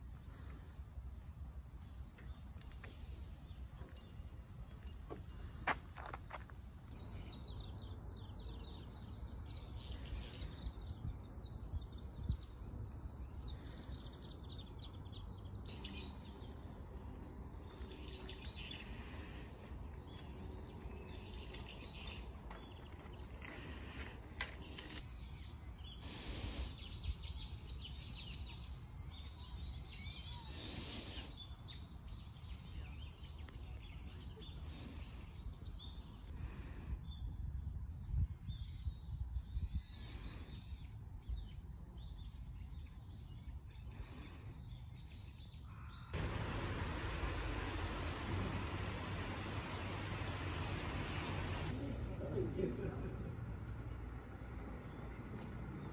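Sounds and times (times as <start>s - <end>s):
birds chirping: 0.2s - 55.9s
low background rumble: 46.2s - 53.0s.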